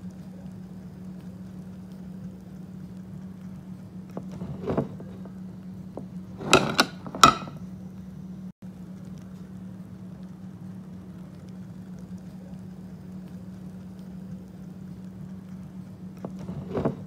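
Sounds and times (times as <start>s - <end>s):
steady low hum: 0.0s - 17.0s
metal cookware clanking: 6.4s - 7.6s.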